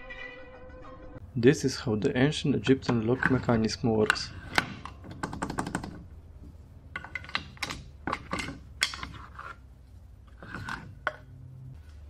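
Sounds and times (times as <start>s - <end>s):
wooden lock clicks and clacks: 2.8s - 6.1s, 6.9s - 9.2s.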